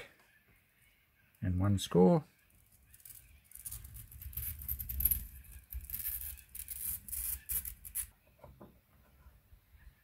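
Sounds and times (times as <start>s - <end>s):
glass cutter scoring glass: 2.8s - 8.1s.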